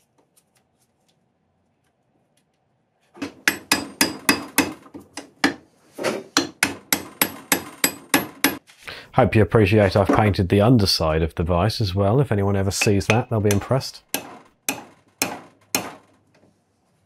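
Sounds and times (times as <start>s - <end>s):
hammer striking metal punch: 3.2s - 5.6s, 6.4s - 8.6s, 12.8s - 16.1s.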